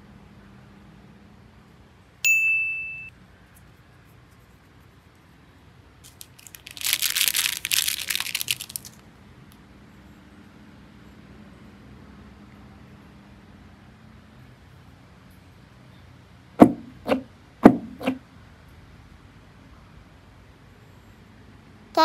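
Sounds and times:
bright ding: 0:02.2 - 0:03.1
foil wrapping crinkling: 0:06.0 - 0:09.0.

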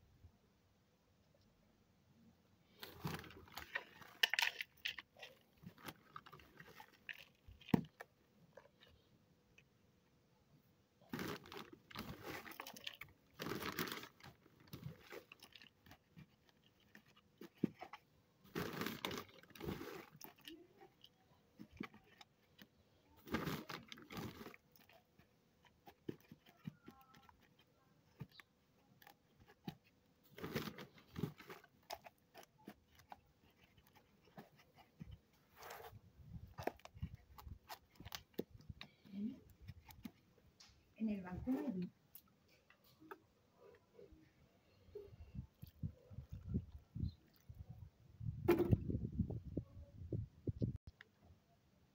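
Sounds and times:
hands packing potting soil: 0:02.7 - 0:09.8, 0:11.0 - 0:43.4.

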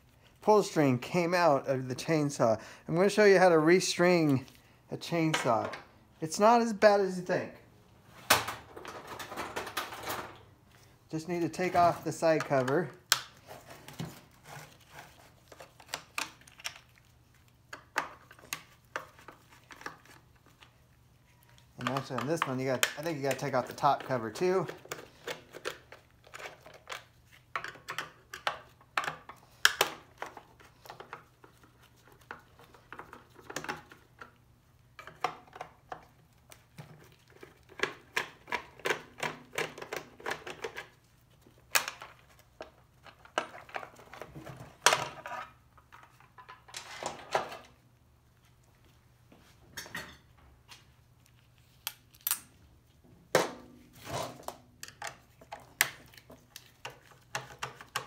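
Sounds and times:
plastic parts clattering on metal: 0:08.3 - 0:10.4, 0:43.1 - 0:47.8.

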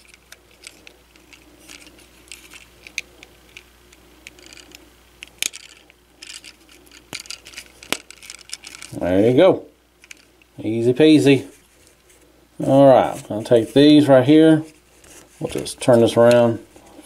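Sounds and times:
plastic pieces clicking: 0:00.0 - 0:09.0.

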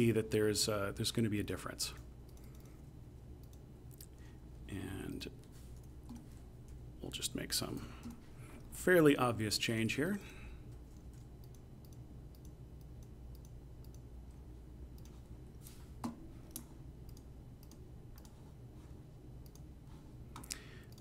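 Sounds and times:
low steady hum: 0:00.0 - 0:21.0
computer mouse clicks: 0:02.3 - 0:02.8, 0:03.4 - 0:04.2, 0:10.9 - 0:14.1, 0:15.0 - 0:15.2, 0:16.5 - 0:18.4, 0:19.4 - 0:19.7, 0:20.4 - 0:21.0.

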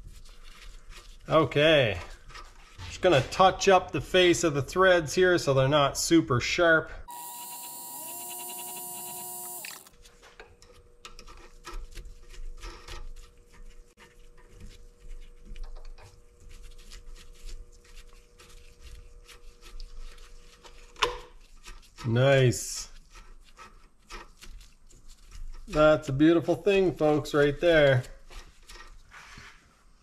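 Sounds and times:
lathe running with file: 0:07.1 - 0:09.9.

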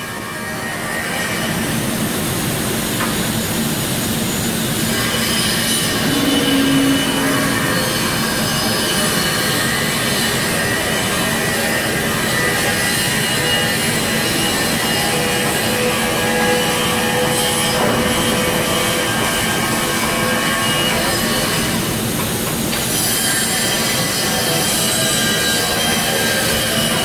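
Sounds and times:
workshop machinery din: 0:02.1 - 0:16.8
high squealing whines: 0:04.4 - 0:11.2.

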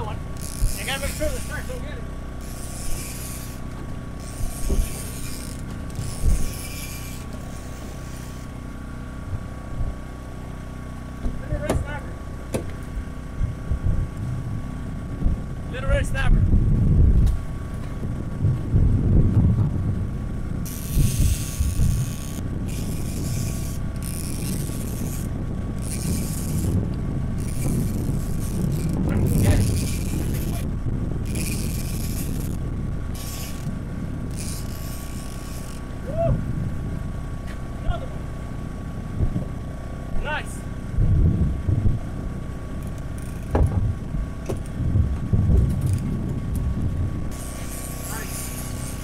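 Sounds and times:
fishing reel cranking: 0:00.0 - 0:08.5, 0:20.6 - 0:36.0, 0:42.8 - 0:43.6, 0:47.3 - 0:49.0
outboard motor idling: 0:00.0 - 0:15.9, 0:19.9 - 0:49.0
low rumble of wind and water: 0:00.0 - 0:49.0.

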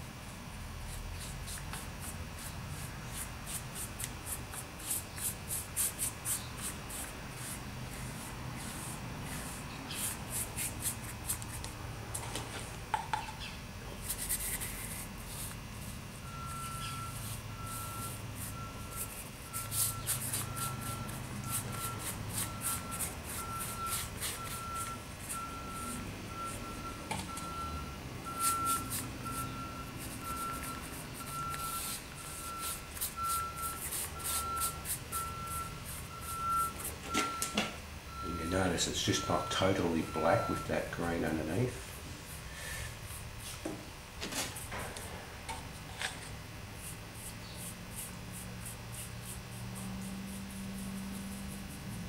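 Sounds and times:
paintbrush scrubbing: 0:00.9 - 0:11.8, 0:14.0 - 0:26.8, 0:28.3 - 0:36.9.

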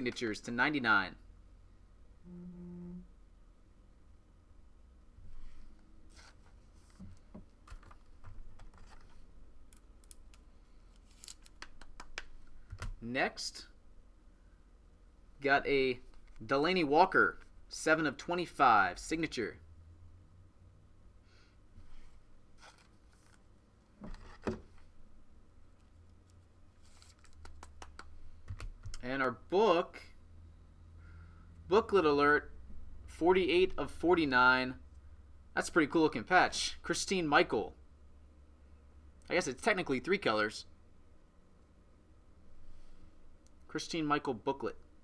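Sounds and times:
trading cards rustling and scraping: 0:05.4 - 0:09.3, 0:10.7 - 0:12.6, 0:21.9 - 0:23.5, 0:26.1 - 0:28.4
cards rustling: 0:09.8 - 0:12.9, 0:26.1 - 0:29.0.

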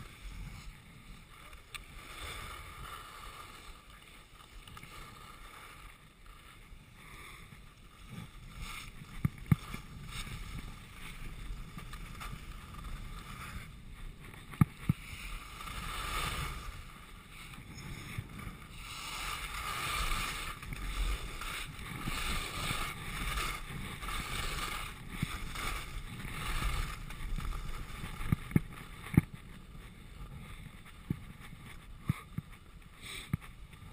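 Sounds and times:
skis scraping over snow: 0:00.0 - 0:33.9.

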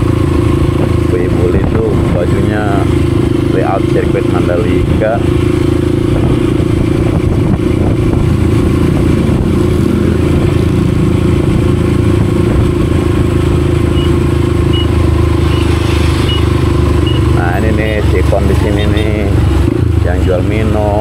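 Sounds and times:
motorcycle engine running: 0:00.0 - 0:21.0
short high beeps: 0:13.9 - 0:17.4.

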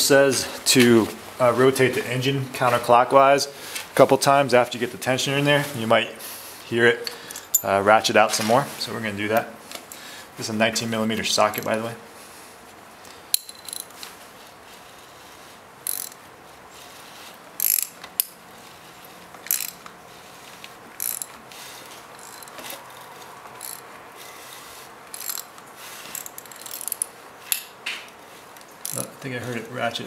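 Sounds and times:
socket wrench ratcheting: 0:13.3 - 0:14.0, 0:15.8 - 0:16.2, 0:17.6 - 0:18.4, 0:19.4 - 0:19.8, 0:21.0 - 0:21.4, 0:22.2 - 0:22.6, 0:23.6 - 0:23.8, 0:25.1 - 0:27.7.

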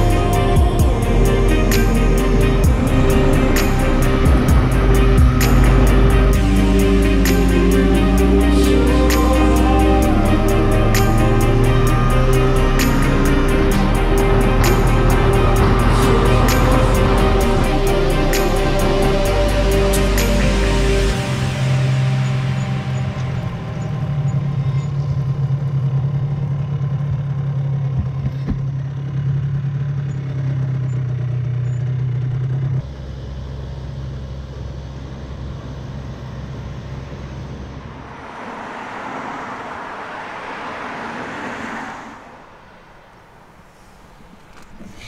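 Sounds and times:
rushing noise: 0:00.0 - 0:26.6, 0:36.8 - 0:45.0
two-stroke engine idling: 0:00.0 - 0:36.8.

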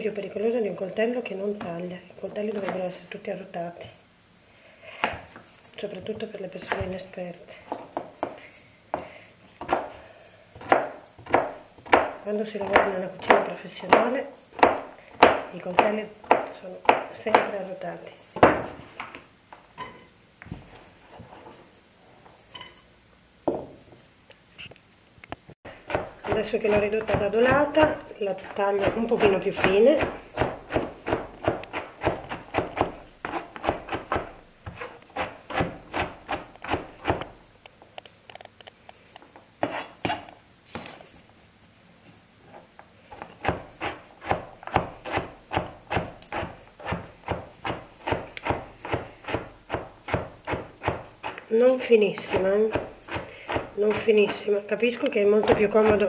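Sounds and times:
knife chopping on cutting board: 0:10.6 - 0:17.6, 0:25.8 - 0:37.3, 0:43.2 - 0:51.4, 0:52.1 - 0:54.5.

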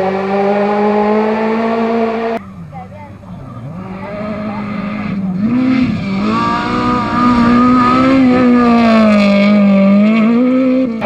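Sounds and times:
rally car engine at high revs: 0:00.0 - 0:02.5, 0:03.2 - 0:11.0.

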